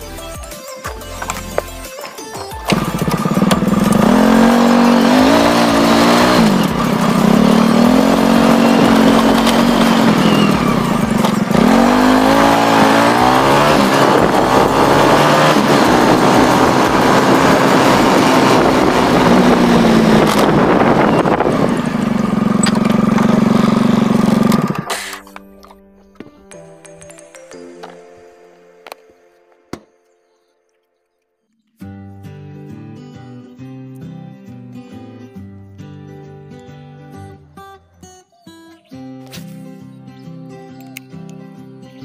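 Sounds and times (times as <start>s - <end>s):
scooter engine revving: 2.7s - 25.3s.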